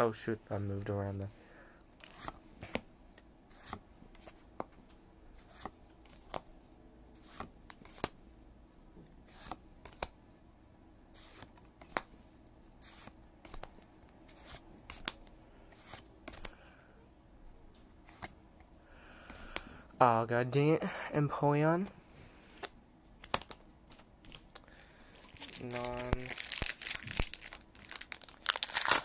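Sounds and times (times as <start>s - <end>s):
trading cards snapping: 19.3s - 19.7s, 22.6s - 24.6s.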